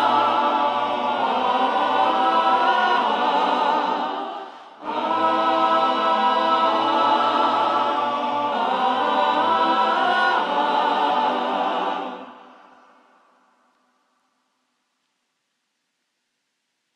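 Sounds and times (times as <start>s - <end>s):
gospel choir sustained notes: 0.0s - 13.5s.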